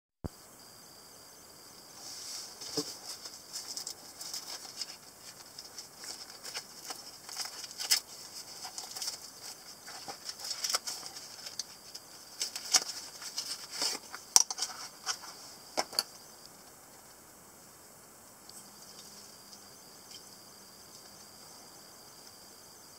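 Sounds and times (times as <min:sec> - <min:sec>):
fabric rustling and scraping: 0:02.0 - 0:15.6.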